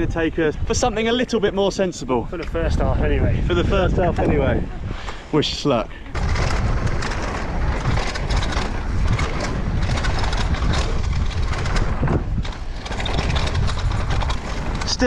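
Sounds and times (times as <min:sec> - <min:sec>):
bike rattling over bumps: 0:00.0 - 0:15.0
wind rumble on microphone: 0:00.0 - 0:15.0
bike tyres crunching over dirt: 0:06.1 - 0:15.0.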